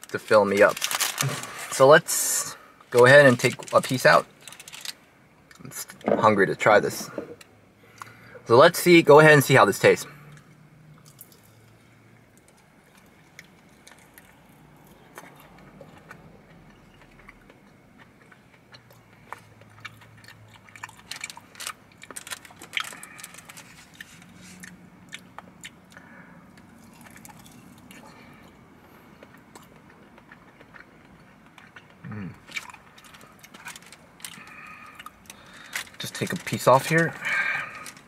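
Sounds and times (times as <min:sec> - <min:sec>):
person chewing chicken wing: 0:12.4 - 0:35.8.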